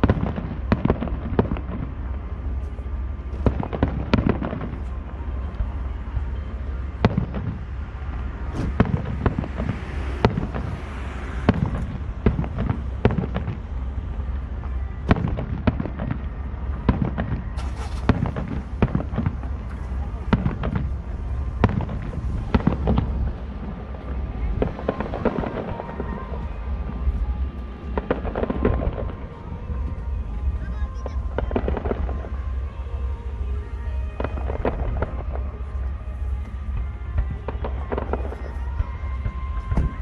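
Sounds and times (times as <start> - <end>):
low rumble: 0.0 - 40.0
distant firework booms: 7.0 - 32.5
firework crackling hiss: 17.1 - 36.7.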